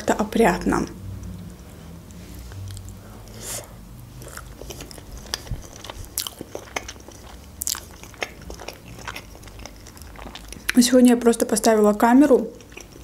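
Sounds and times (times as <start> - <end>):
person chewing food: 2.1 - 10.8, 12.5 - 13.0.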